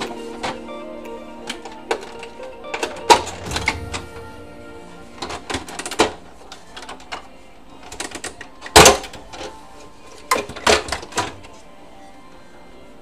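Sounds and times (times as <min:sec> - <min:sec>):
loud knock: 0:03.3 - 0:06.0.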